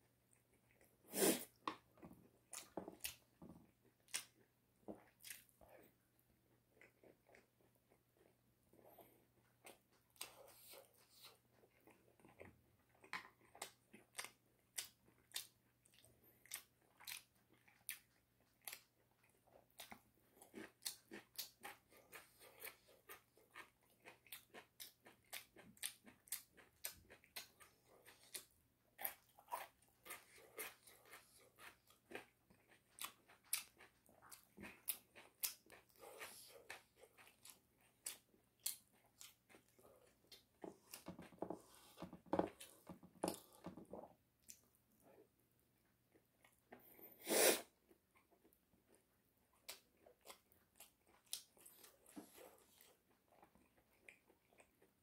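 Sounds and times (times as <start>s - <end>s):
person chewing crispy chicken: 6.5s - 41.4s, 47.8s - 55.0s.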